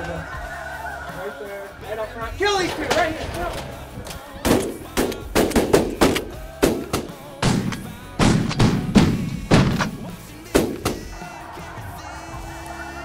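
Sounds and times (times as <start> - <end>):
shotgun shots: 4.4 - 11.2.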